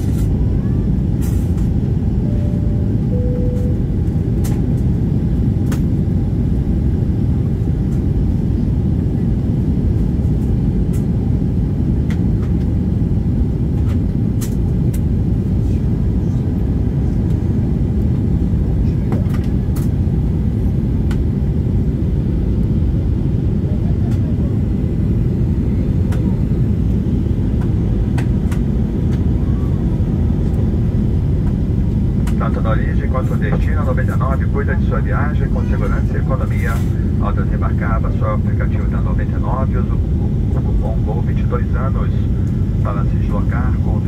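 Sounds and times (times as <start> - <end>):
airplane cabin roar: 0.0 - 44.0
two-tone cabin chime: 2.2 - 3.9.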